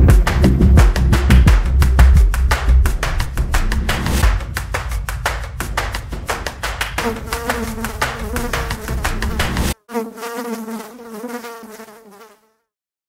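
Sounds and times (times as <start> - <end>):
drone propellers buzzing: 5.6 - 9.7.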